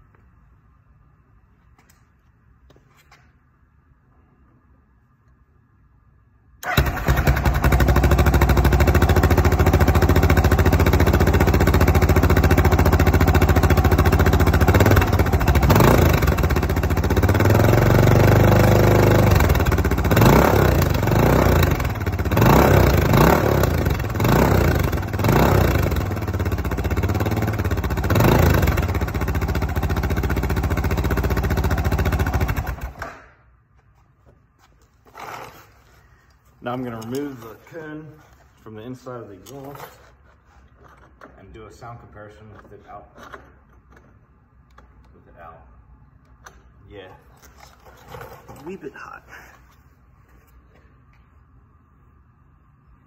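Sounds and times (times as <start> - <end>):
motorcycle engine idling and revving: 6.6 - 33.1.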